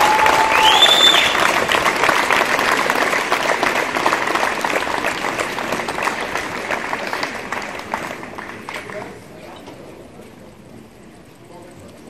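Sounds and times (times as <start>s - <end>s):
crowd applauding: 0.0s - 9.3s.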